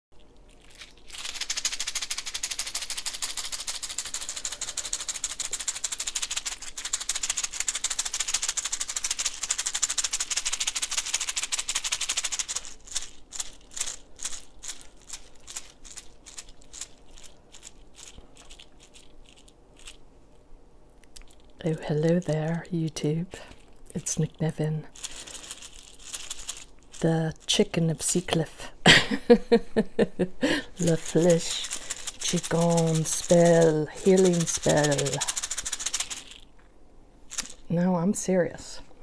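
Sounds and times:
hand rattles shaking: 0.5s - 20.0s, 21.2s - 21.6s, 23.4s - 28.4s, 30.6s - 36.5s, 37.3s - 37.7s.

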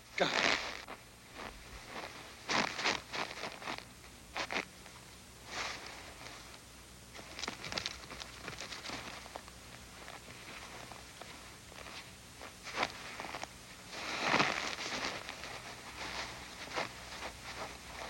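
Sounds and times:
footsteps crunching in snow: 0.2s - 6.5s, 7.1s - 18.0s.

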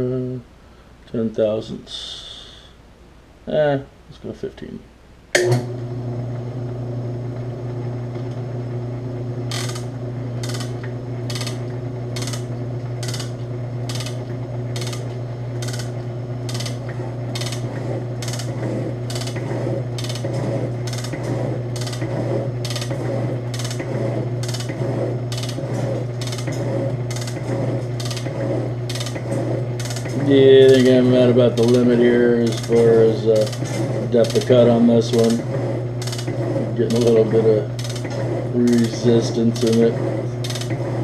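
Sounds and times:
motor hum: 5.2s - 41.0s
rhythmic mechanical click: 9.5s - 41.0s.

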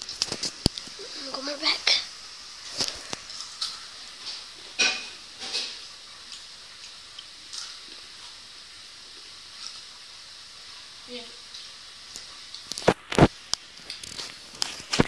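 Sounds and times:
snack crunching and chewing: 0.0s - 1.0s, 2.6s - 4.8s, 5.6s - 10.9s, 11.5s - 15.0s.

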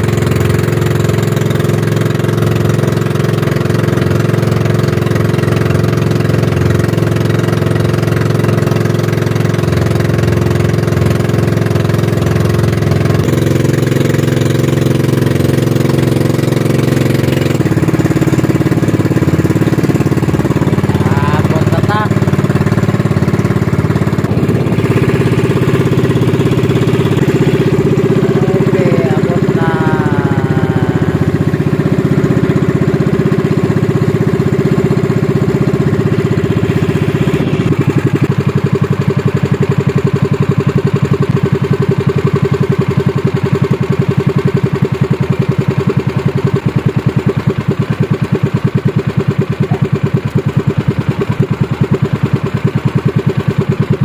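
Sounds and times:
boat engine running: 0.0s - 54.0s.

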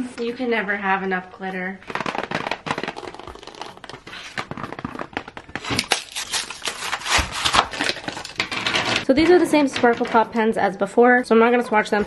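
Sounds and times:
plastic blister pack crackling: 1.8s - 9.1s.

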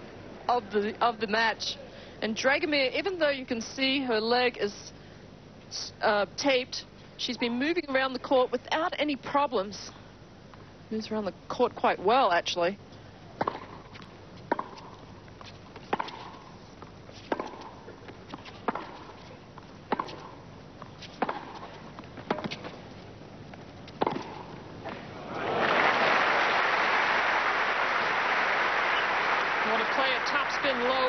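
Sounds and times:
tennis ball hit by rackets: 13.4s - 15.0s, 15.8s - 16.5s, 17.3s - 19.3s, 19.9s - 20.4s, 21.0s - 22.7s, 23.9s - 25.1s
crowd applause: 25.2s - 31.0s.

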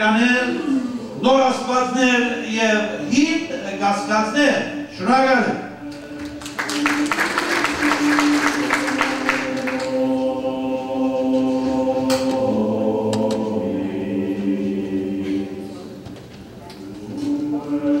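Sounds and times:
choir singing sustained chords: 0.0s - 16.2s, 16.8s - 18.0s
audience applause: 6.1s - 10.0s.

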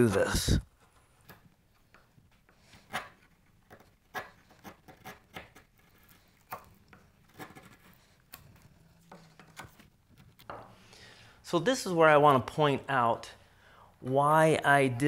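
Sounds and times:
chisel paring wood: 2.8s - 9.8s.

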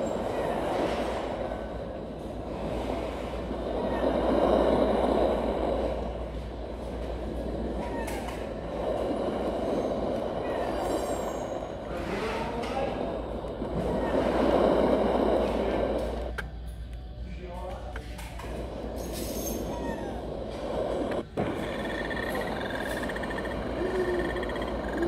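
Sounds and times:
faint chirping glides: 0.0s - 12.2s, 18.6s - 25.0s.

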